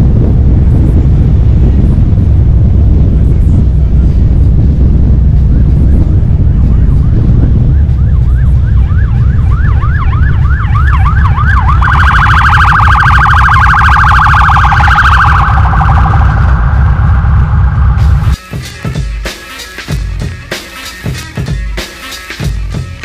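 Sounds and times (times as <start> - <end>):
motorcycle engines rumbling: 0.0 - 18.4
wind: 0.0 - 18.4
police siren: 5.3 - 18.3.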